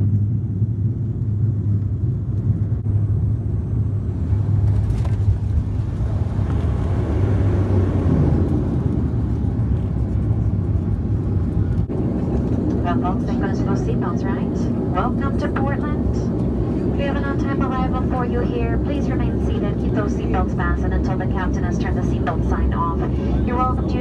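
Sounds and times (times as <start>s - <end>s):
turboprop engines droning in cabin: 0.0s - 24.0s.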